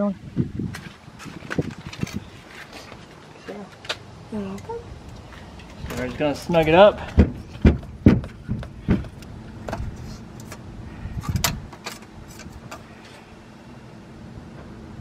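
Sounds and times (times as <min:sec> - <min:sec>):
oil filter screwing clicks and scrapes: 0:09.1 - 0:10.6, 0:11.2 - 0:12.9.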